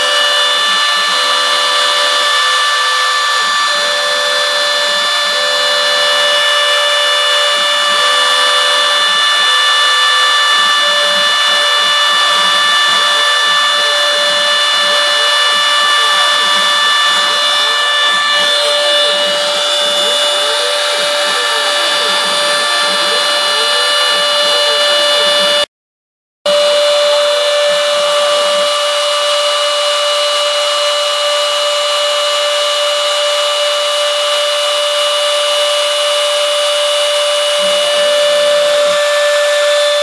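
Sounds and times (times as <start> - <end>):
lower tones rising and falling: 0.0 - 25.7
router spindle high-pitched whine: 0.0 - 25.7, 26.5 - 40.0.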